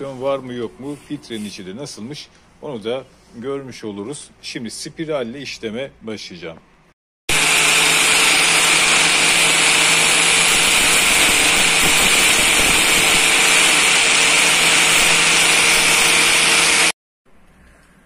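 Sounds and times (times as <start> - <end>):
angle grinder cutting metal: 7.3 - 17.0.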